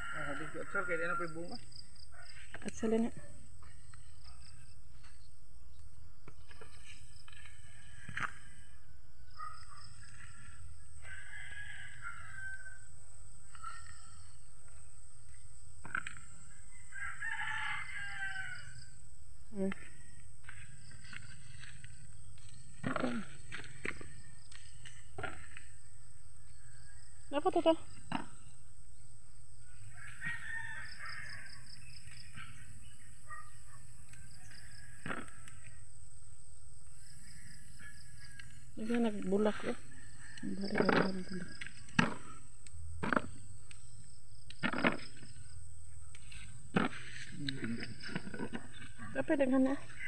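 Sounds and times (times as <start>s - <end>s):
rooster crowing: 0.0s - 2.4s, 10.7s - 13.9s, 16.5s - 19.0s, 29.8s - 32.3s, 34.1s - 35.9s, 39.4s - 42.3s.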